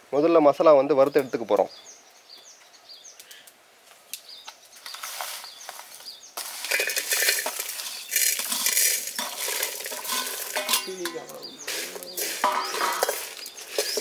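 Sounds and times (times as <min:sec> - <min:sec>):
spices scraping in metal pan: 0:04.8 - 0:14.0.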